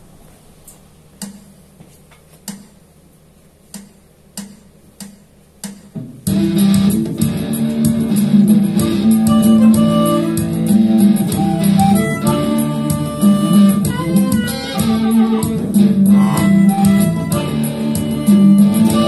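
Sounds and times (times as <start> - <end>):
electric guitar over backing track: 6.3 - 19.0.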